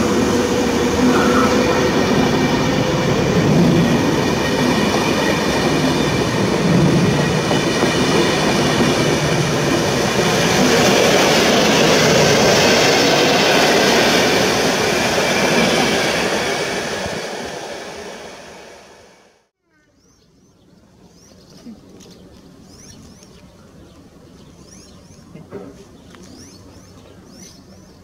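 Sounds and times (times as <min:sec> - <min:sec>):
train wheels rumbling over rails: 0:00.0 - 0:19.4.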